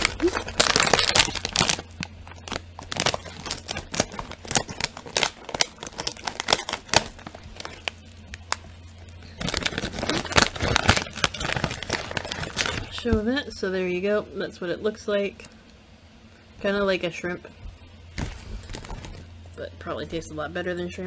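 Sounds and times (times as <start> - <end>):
scissors cutting plastic bag: 0.0 - 8.6, 9.3 - 13.1
foil bag crinkling: 0.0 - 13.2, 18.1 - 19.4.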